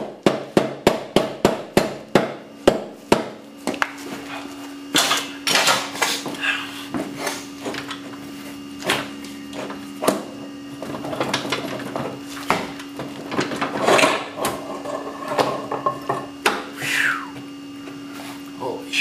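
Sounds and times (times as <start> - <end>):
metal scraping and clunking: 13.3 - 16.3.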